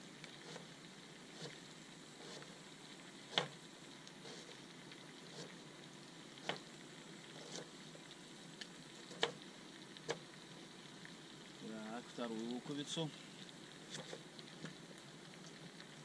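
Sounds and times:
vegetables sizzling in pot: 0:00.0 - 0:16.0.

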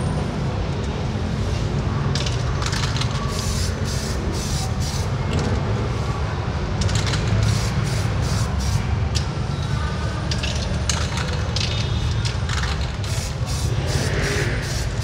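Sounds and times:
aerosol spray can hissing: 0:13.1 - 0:15.0.

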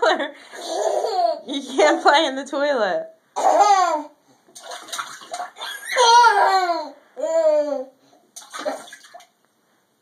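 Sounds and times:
water splashing in toilet bowl: 0:04.5 - 0:05.7, 0:08.4 - 0:09.4
toddler's high vocal cries: 0:05.6 - 0:07.9.

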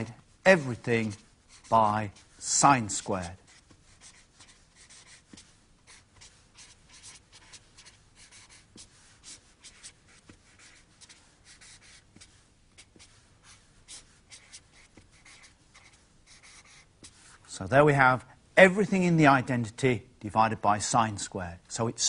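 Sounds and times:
marker writing on paper: 0:00.5 - 0:17.4.

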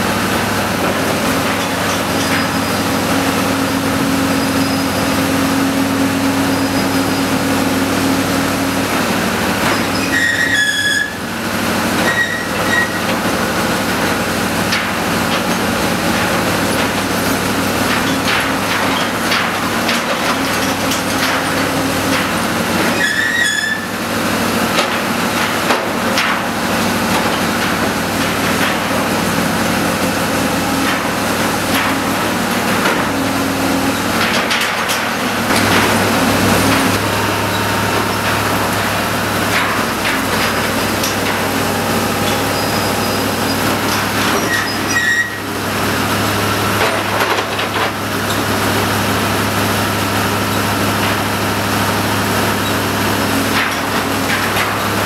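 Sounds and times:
diesel engine running: 0:00.0 - 0:55.0
short squeal: 0:09.7 - 0:11.3, 0:12.0 - 0:13.0, 0:23.0 - 0:24.0, 0:44.4 - 0:45.5.

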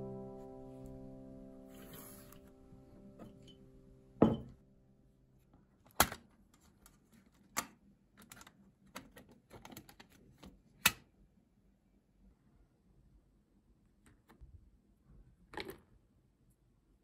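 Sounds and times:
knock on wooden desk: 0:04.2 - 0:04.6.

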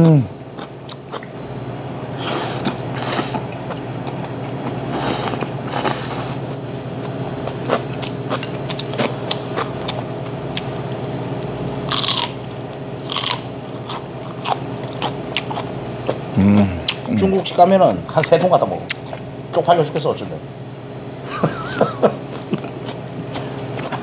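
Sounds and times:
wet chewing: 0:00.5 - 0:01.4, 0:07.0 - 0:10.7, 0:22.3 - 0:24.0
slurping noodles: 0:02.2 - 0:03.4, 0:04.9 - 0:06.4.

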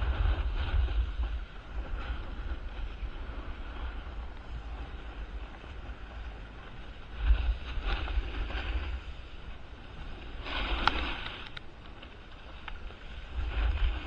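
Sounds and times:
wind buffeting microphone: 0:00.0 - 0:14.0
ski edges scraping on snow: 0:06.0 - 0:09.3, 0:09.9 - 0:14.0.

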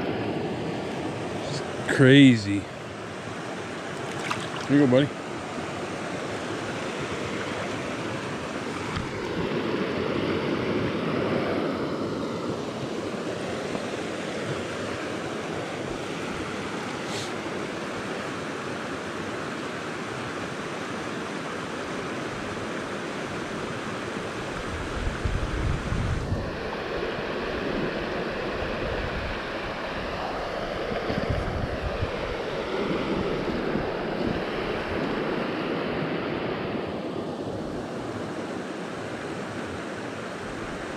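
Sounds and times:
stream rushing over rocks: 0:00.0 - 0:24.9
wind buffeting microphone: 0:24.5 - 0:35.4.

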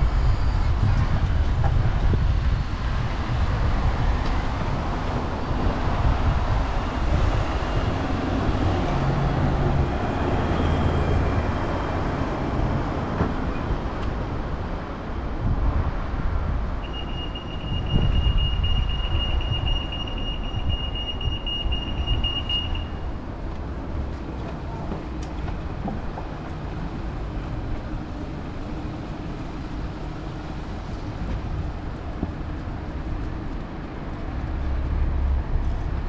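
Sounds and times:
road traffic rumbling: 0:00.0 - 0:36.0
crossing beeper: 0:16.8 - 0:23.2.

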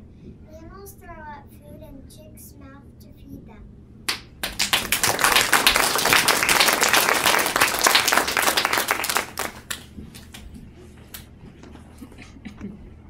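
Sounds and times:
children applauding: 0:04.4 - 0:10.4.

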